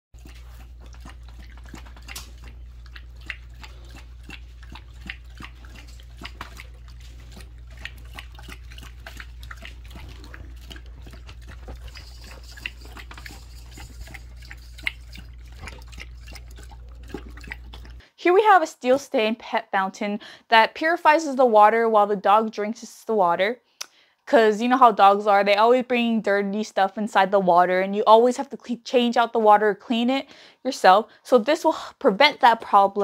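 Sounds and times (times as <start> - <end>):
steady low hum: 0.2 - 18.0
dog lapping water: 0.2 - 18.1.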